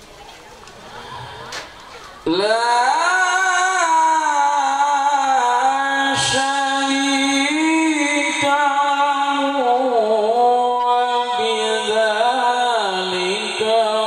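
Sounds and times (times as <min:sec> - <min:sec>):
man reciting melodically into microphone: 0:02.2 - 0:14.0.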